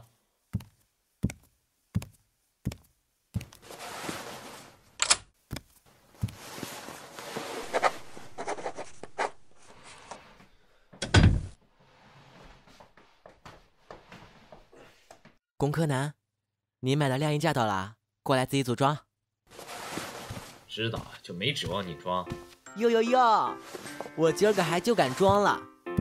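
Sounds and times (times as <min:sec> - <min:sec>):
footsteps: 0:05.5 - 0:10.6, 0:19.5 - 0:22.6, 0:23.5 - 0:25.6
rustling: 0:05.7 - 0:10.6, 0:19.5 - 0:21.1, 0:23.6 - 0:25.3.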